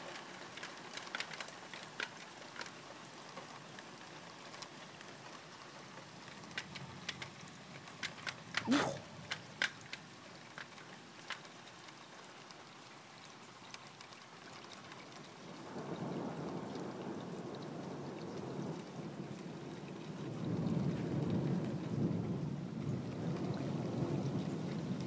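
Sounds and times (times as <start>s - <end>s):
rain falling: 0.0s - 25.0s
raindrop ticks: 0.0s - 25.0s
low rumble of thunder: 15.5s - 25.0s.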